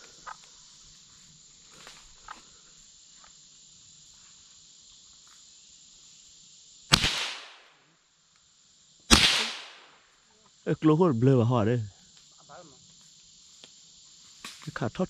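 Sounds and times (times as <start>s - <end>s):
insects droning: 0.0s - 15.0s
rifle shot with echo: 6.9s - 7.7s, 9.1s - 10.0s.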